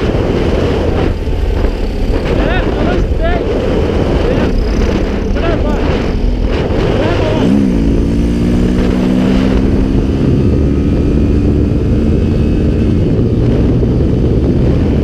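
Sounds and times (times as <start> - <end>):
motorcycle engine running: 0.0 - 15.0
wind rush on microphone: 0.0 - 15.0.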